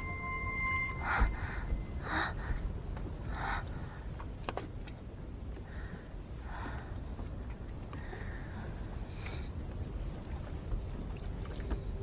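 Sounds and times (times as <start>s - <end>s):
low steady rumble: 0.0s - 12.0s.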